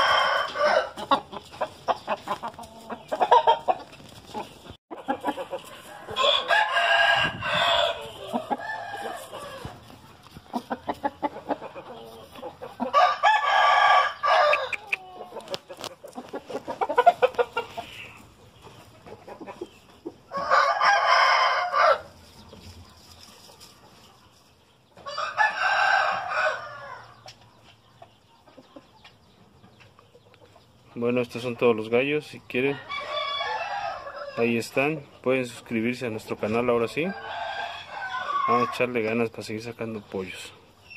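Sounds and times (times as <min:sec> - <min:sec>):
roosters crowing: 0:00.0 - 0:23.4, 0:25.0 - 0:27.4, 0:32.1 - 0:35.0, 0:36.3 - 0:39.6
rooster clucks: 0:00.0 - 0:24.0.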